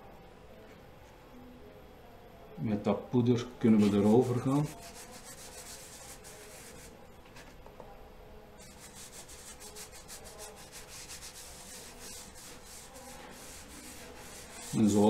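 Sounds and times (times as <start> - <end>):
cotton pad scrubbing paper: 3.8 - 6.9, 8.6 - 15.0.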